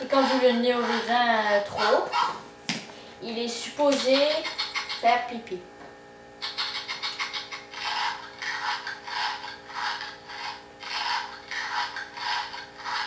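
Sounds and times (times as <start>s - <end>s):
robot short rasping bursts: 0.0s - 2.4s.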